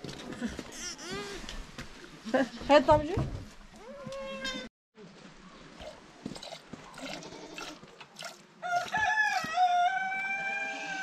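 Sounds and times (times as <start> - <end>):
rooster crowing: 8.6 - 11.0.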